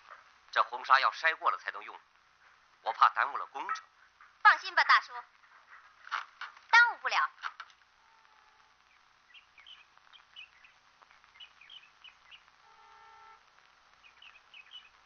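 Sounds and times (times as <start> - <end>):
small birds chirping: 0.0 - 15.0
brief steady tone: 12.7 - 13.4.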